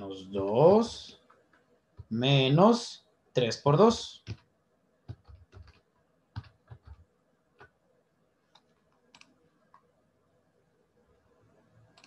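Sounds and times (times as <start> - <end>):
faint keyboard keystrokes: 4.2 - 4.5, 5.1 - 7.8.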